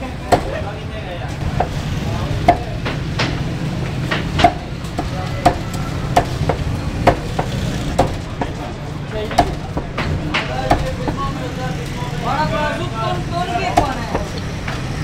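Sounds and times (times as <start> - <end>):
cleaver chopping on wooden block: 0.3 - 0.6, 1.5 - 1.8, 2.4 - 8.6, 9.3 - 11.3, 13.7 - 14.9.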